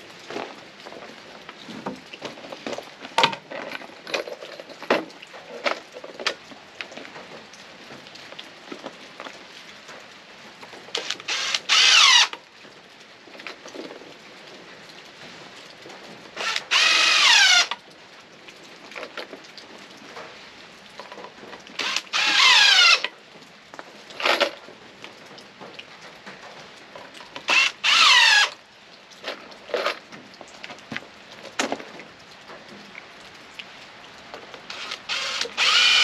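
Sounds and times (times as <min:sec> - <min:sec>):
power drill driving screws into wood: 0:11.0 - 0:12.4, 0:16.4 - 0:17.8, 0:21.8 - 0:23.1, 0:27.5 - 0:28.6, 0:34.7 - 0:36.0
drill trigger blips: 0:34.7 - 0:36.0.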